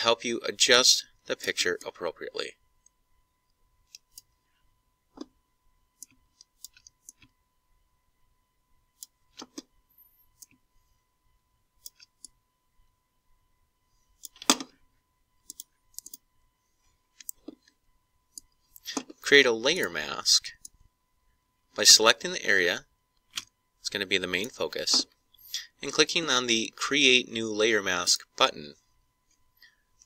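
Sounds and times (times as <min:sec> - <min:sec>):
computer mouse clicking: 0:06.0 - 0:07.4, 0:11.8 - 0:12.4, 0:15.4 - 0:16.2, 0:17.2 - 0:19.1.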